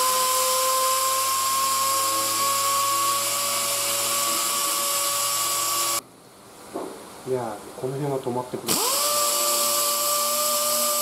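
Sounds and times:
air sander whining: 0:00.0 - 0:06.0, 0:08.7 - 0:11.0.

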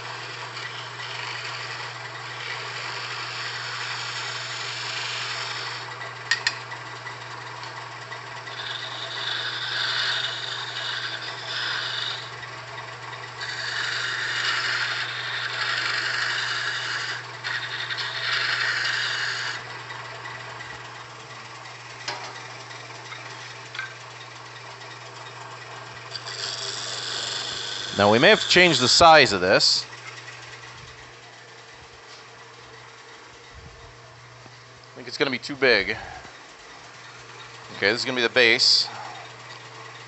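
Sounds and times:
turning tool scraping wood: 0:00.0 - 0:06.1, 0:06.7 - 0:31.4
lathe motor humming: 0:00.0 - 0:40.0.

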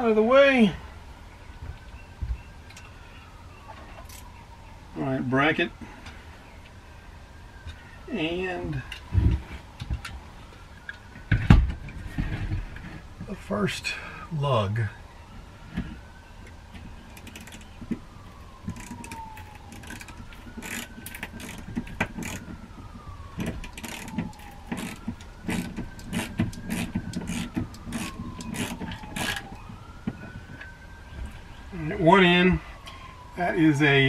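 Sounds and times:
faint siren wailing: 0:00.0 - 0:34.0
hand ratchet clicking: 0:19.7 - 0:22.4, 0:23.7 - 0:29.4.

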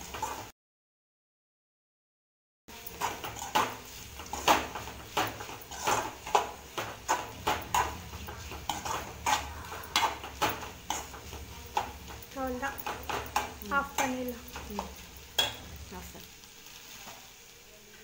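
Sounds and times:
spoon scraping metal pan: 0:02.7 - 0:17.2.

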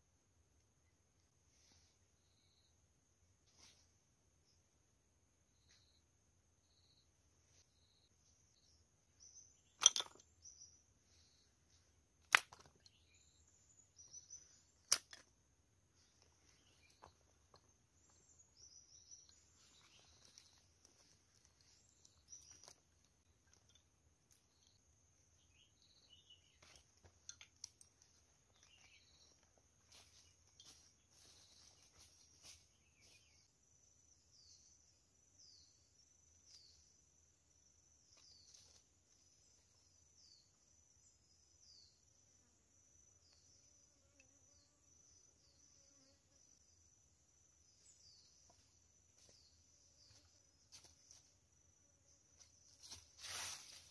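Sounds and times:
wooden pegs knocked into ground: 0:09.7 - 0:10.6, 0:12.2 - 0:13.0
sticks and leaves rustling: 0:19.3 - 0:23.7, 0:26.4 - 0:33.3, 0:52.4 - 0:53.9.

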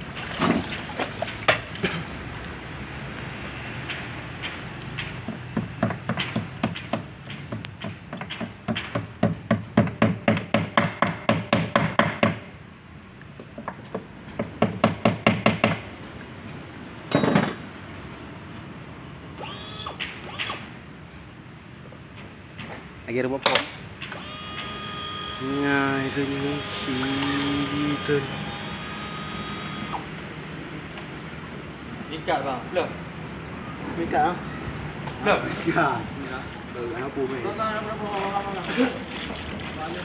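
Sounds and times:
hand tools knocking on metal: 0:05.0 - 0:12.4.

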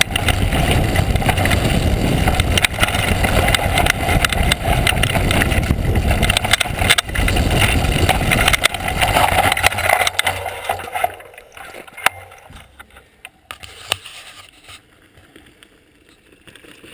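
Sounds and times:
wind on microphone: 0:00.0 - 0:11.2
bike rattling over stones: 0:00.0 - 0:16.9
gravel crunching: 0:00.0 - 0:16.9
tyres on gravel: 0:00.0 - 0:16.9.

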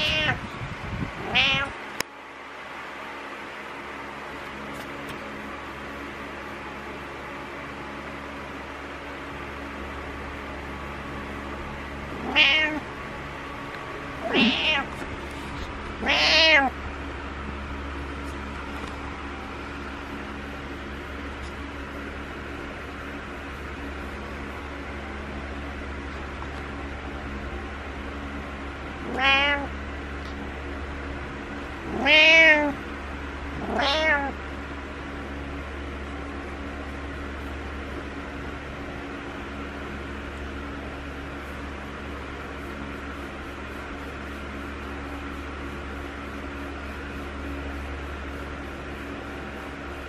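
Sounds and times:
cat meowing: 0:00.0 - 0:00.4, 0:01.2 - 0:01.8, 0:12.1 - 0:12.9, 0:14.2 - 0:15.0, 0:16.0 - 0:16.8, 0:29.0 - 0:29.7, 0:31.8 - 0:32.8, 0:33.6 - 0:34.4
steady background hum: 0:00.0 - 0:50.0.

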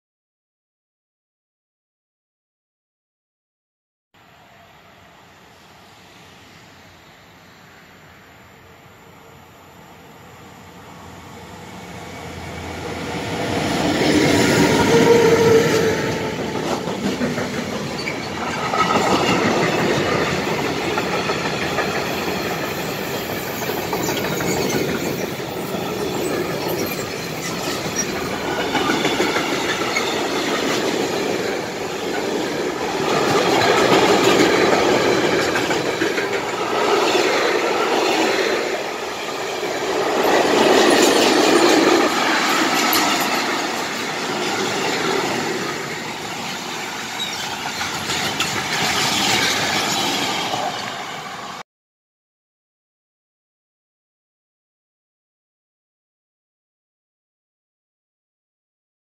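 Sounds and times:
locomotives passing: 0:10.4 - 0:51.6
wheels clacking over rail joints: 0:13.4 - 0:51.1
high wheel squeal: 0:23.7 - 0:30.6, 0:46.0 - 0:51.2.

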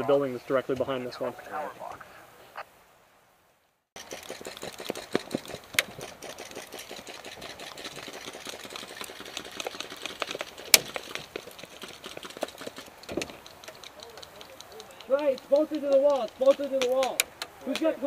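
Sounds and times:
loose gear rattling: 0:04.0 - 0:18.0
running footsteps on pavement: 0:04.0 - 0:18.0.

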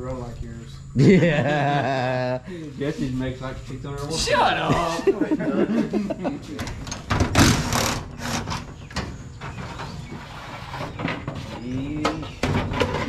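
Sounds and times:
tools knocking and scraping metal: 0:06.6 - 0:13.0.

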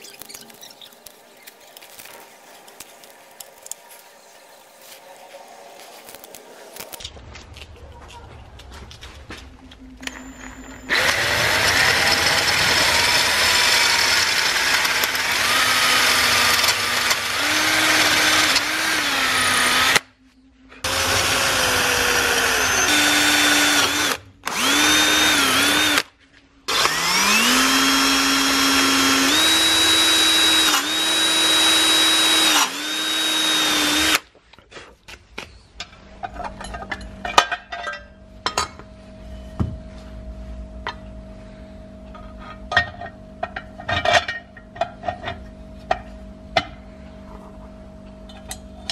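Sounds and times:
electric drill whining: 0:10.0 - 0:20.0, 0:20.8 - 0:26.1, 0:26.7 - 0:34.2
metal parts clinking: 0:36.2 - 0:38.8.

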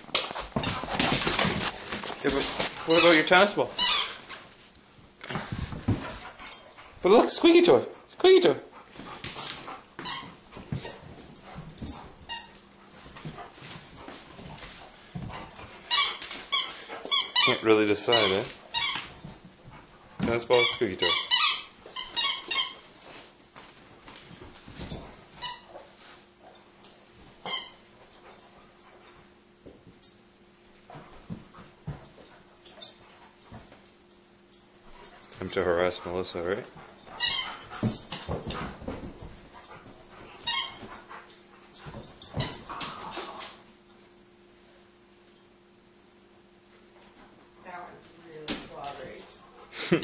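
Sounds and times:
dog whimpering and panting: 0:02.0 - 0:04.3, 0:36.8 - 0:38.6, 0:39.6 - 0:41.3.

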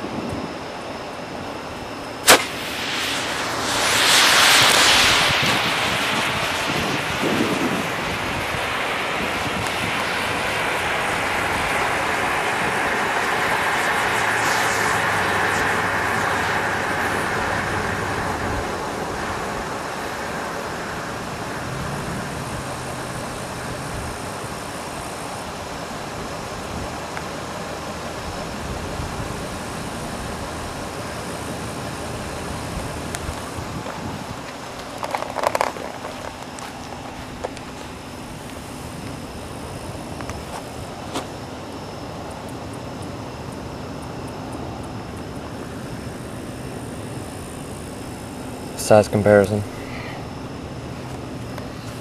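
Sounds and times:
smoke bomb hissing: 0:02.1 - 0:26.1, 0:46.9 - 0:52.0.

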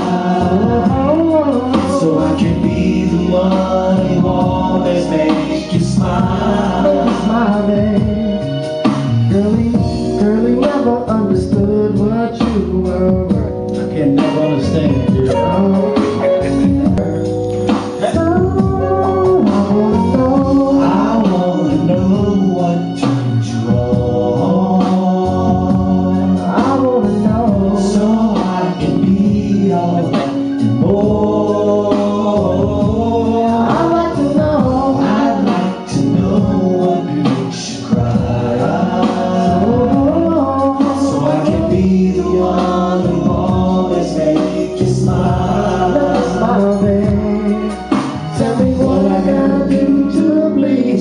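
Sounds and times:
man singing karaoke: 0:00.0 - 0:51.0
recorded backing track: 0:00.0 - 0:51.0.

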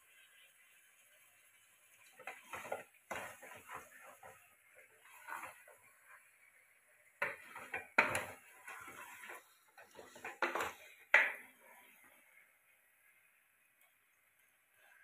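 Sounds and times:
ladle scraping metal pot: 0:02.2 - 0:05.9, 0:07.2 - 0:11.5.

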